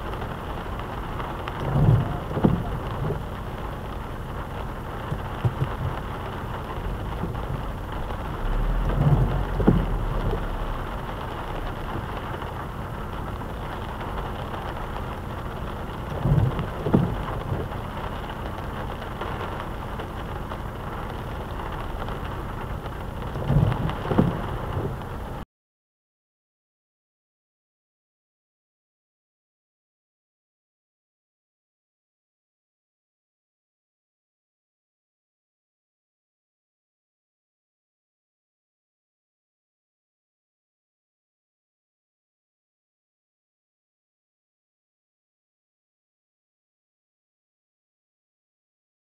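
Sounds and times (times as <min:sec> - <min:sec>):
rain on a car: 0:00.0 - 0:25.4
road noise inside a car: 0:00.0 - 0:25.4
windscreen wiper thumps: 0:00.0 - 0:25.4.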